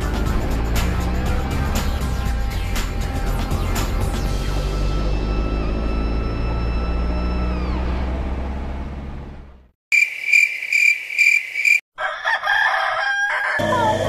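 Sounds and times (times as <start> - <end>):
background music: 0.0 - 7.5
high pulsing chirp: 9.9 - 11.8
rooster crowing: 11.6 - 14.0.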